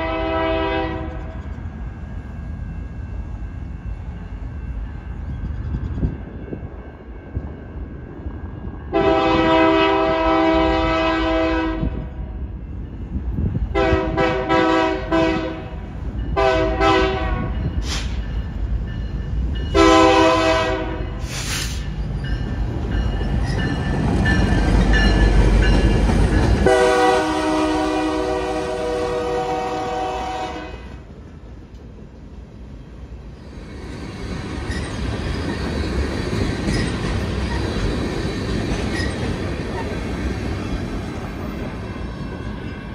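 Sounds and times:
locomotive air horn blasts: 0.0s - 1.3s, 8.9s - 12.1s, 13.7s - 15.8s, 16.4s - 18.1s, 19.7s - 21.8s, 26.6s - 31.0s.

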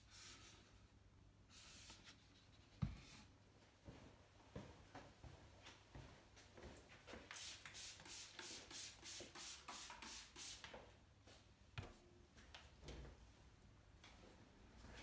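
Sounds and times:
spray bottle spritzing: 7.3s - 10.7s.

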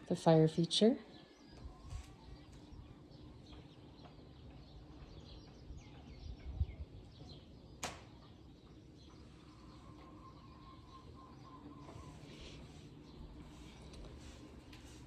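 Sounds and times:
faint birds chirping: 0.0s - 15.0s.

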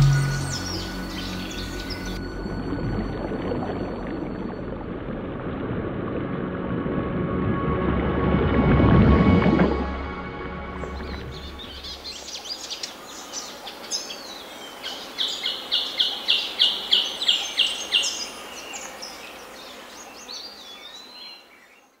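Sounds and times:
birds chirping and whistling: 0.0s - 2.2s.

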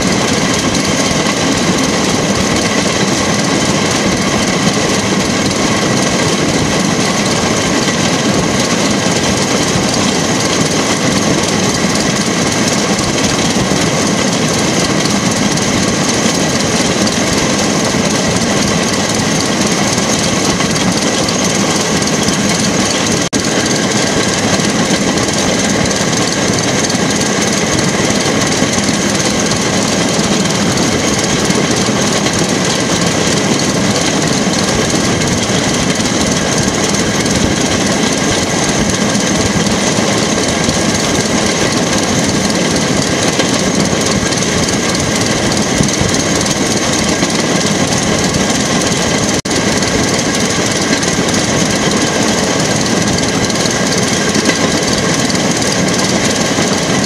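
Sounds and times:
small engine running: 0.0s - 57.0s
wheels rumbling on rails: 0.0s - 57.0s.

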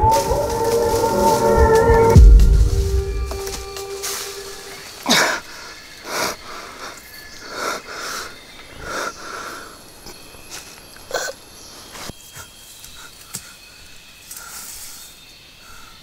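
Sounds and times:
man breathing heavily: 5.0s - 10.0s.

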